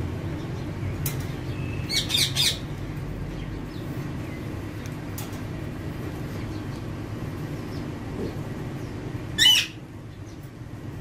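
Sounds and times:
low background hum: 0.0 - 11.0
parakeet harsh squawks: 1.9 - 2.6, 9.4 - 9.8.

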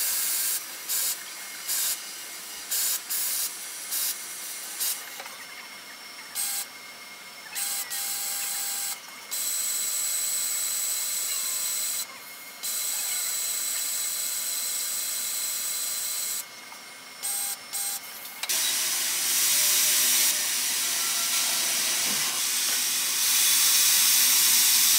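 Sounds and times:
coolant spray hissing: 0.0 - 5.1, 18.5 - 24.9
machine high whine: 0.0 - 24.9.

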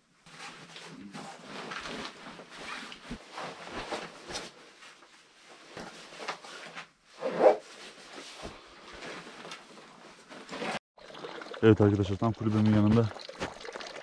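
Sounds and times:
jacket rustling: 0.2 - 10.8.

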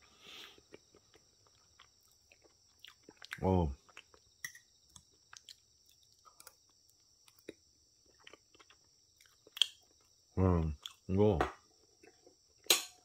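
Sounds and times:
faint chewing: 0.0 - 11.1.

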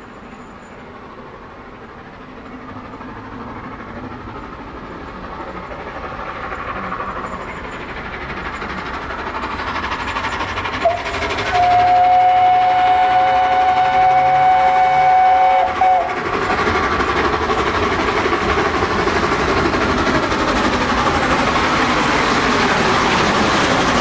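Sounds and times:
steam locomotive exhaust: 0.0 - 24.0
steam whistle: 10.8 - 16.2.

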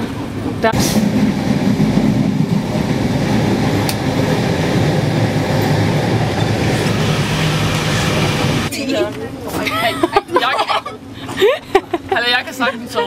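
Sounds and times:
train wheels rumbling on rails: 0.0 - 8.7
sharp tick: 3.8 - 4.0.

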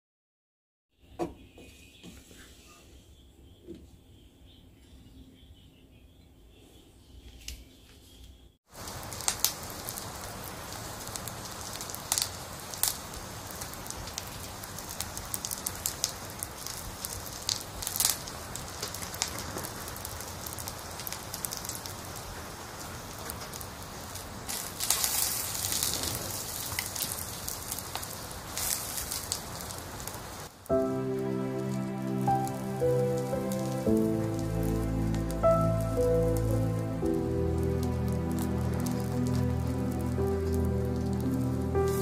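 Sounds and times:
wood fire crackling: 8.7 - 42.0.

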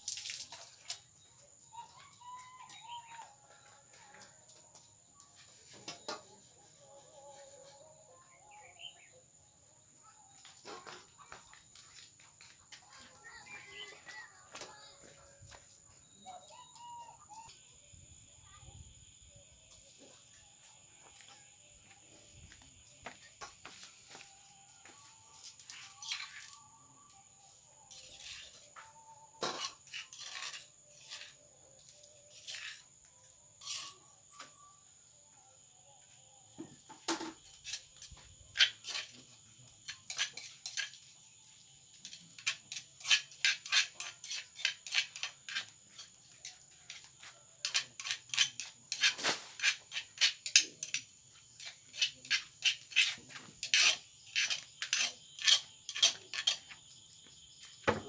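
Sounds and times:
metal spoon scraping a bowl: 25.8 - 26.6, 27.9 - 28.8, 29.4 - 31.5, 32.3 - 33.0, 33.6 - 34.1, 37.4 - 39.2, 39.8 - 41.0, 42.0 - 56.8.

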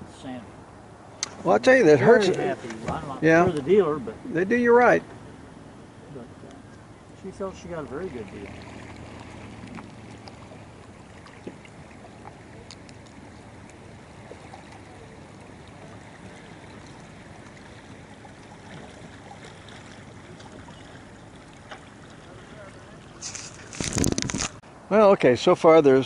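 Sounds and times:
outboard motor hum: 0.0 - 24.6
water swishing along boat hull: 0.0 - 24.6
faint ticks: 11.4 - 13.8.

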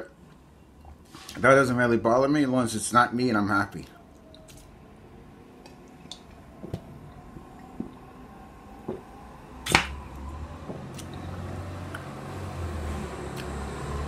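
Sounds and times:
low hum: 4.0 - 13.8.

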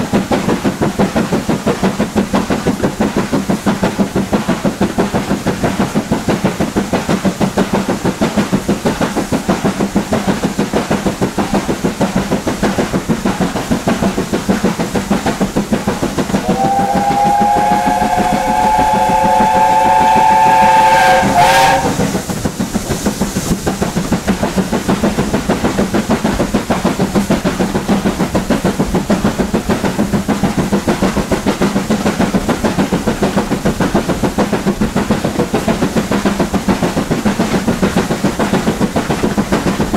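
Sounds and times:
steam engine exhaust beating: 0.0 - 39.9
steam whistle chord: 16.4 - 22.1.

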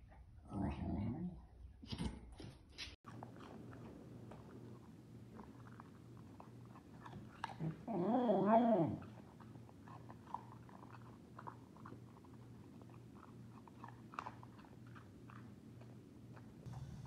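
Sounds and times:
dog eating from a bowl: 3.1 - 8.0, 8.8 - 17.0.

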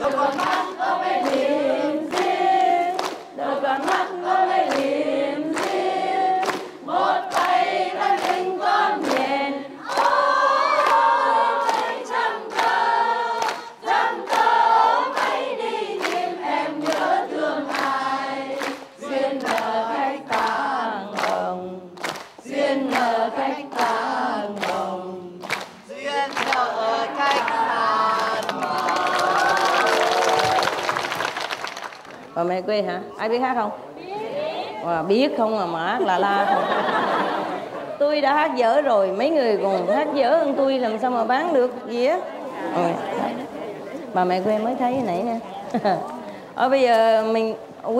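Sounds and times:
hands clapping: 0.0 - 1.5, 2.1 - 5.0, 5.6 - 9.3, 10.8 - 12.8, 13.4 - 14.5, 15.1 - 15.4, 16.0 - 19.7, 20.3 - 20.6, 21.2 - 21.4, 22.0 - 23.1, 23.7 - 24.0, 24.6 - 24.8, 25.4 - 27.6, 28.2 - 32.3
women singing in unison: 0.0 - 30.7, 38.2 - 46.0.

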